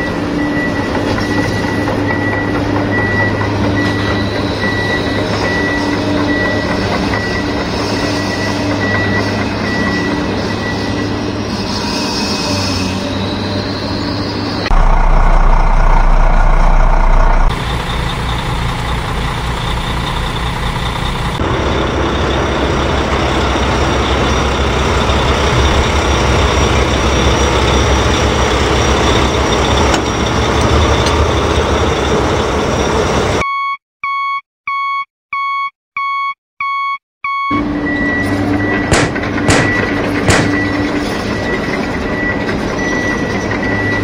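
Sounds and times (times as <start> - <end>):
reversing alarm beeping: 0.0 - 11.2, 23.3 - 44.0
heavy vehicle engine running: 14.6 - 33.4, 37.5 - 44.0.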